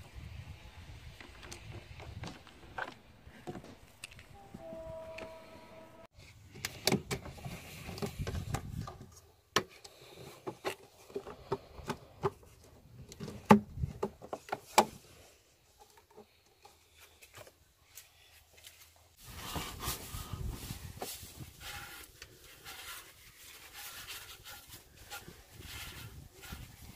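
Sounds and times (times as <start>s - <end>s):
plastic hose clicks and knocks: 13.1s - 14.9s
rustling: 14.3s - 26.9s.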